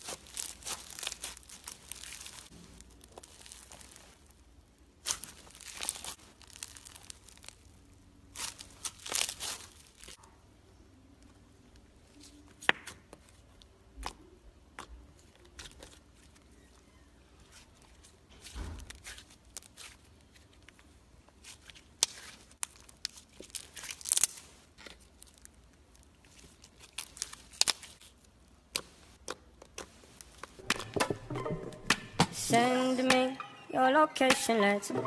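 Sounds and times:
slime popping and tearing: 0:00.0 - 0:04.2, 0:05.0 - 0:07.7.

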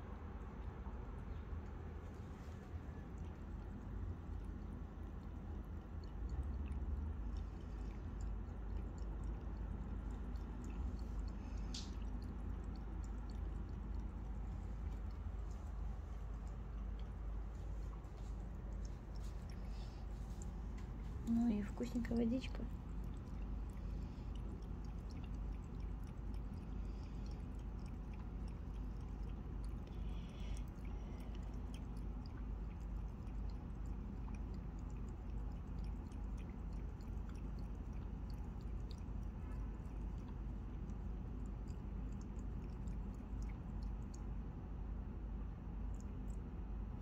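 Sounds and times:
cat lapping water: 0:00.0 - 0:47.0
steady low hum: 0:00.0 - 0:47.0.

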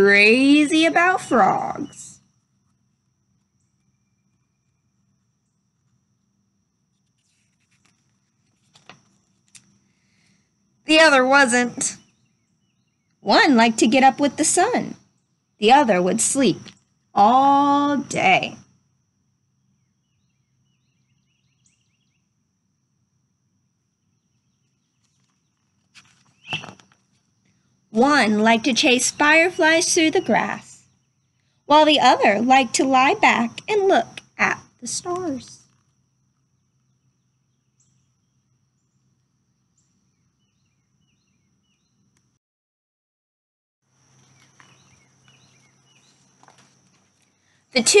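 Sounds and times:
distant bird chirping: 0:00.0 - 0:06.4, 0:07.0 - 0:18.7, 0:19.5 - 0:22.4, 0:24.0 - 0:42.1, 0:44.0 - 0:48.0
faint steady high tone: 0:03.4 - 0:06.2
faint bird chirps: 0:03.4 - 0:06.3, 0:07.0 - 0:13.7, 0:19.5 - 0:22.4, 0:24.0 - 0:27.8, 0:44.1 - 0:48.0.

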